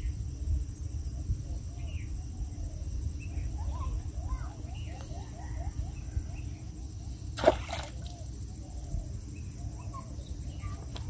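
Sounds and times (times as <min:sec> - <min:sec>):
birds chirping: 0:01.8 - 0:11.0
splash in shallow water: 0:07.4 - 0:08.2.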